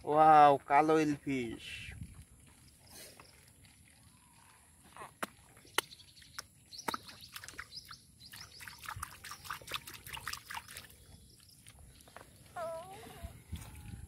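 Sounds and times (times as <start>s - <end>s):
wet mud squelching: 2.2s - 12.9s.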